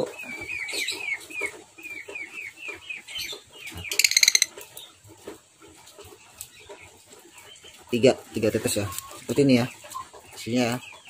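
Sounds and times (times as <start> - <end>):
bird chirping: 0.0 - 5.0.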